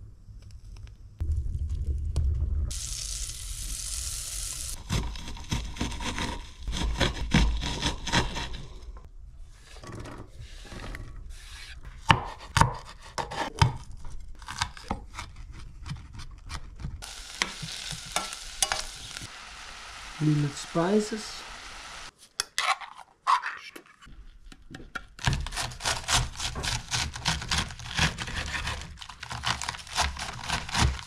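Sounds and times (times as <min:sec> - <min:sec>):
knife chopping on cutting board: 0:12.1 - 0:13.8
hissing rush: 0:17.0 - 0:22.1
onion scraped off board: 0:25.2 - 0:31.0.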